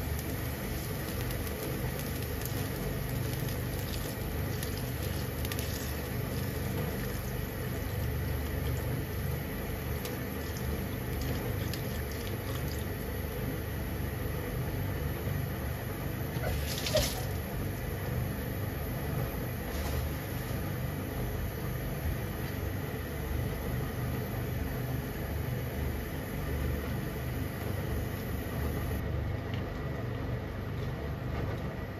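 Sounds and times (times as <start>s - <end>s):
broth bubbling in a pan: 0.0s - 29.0s.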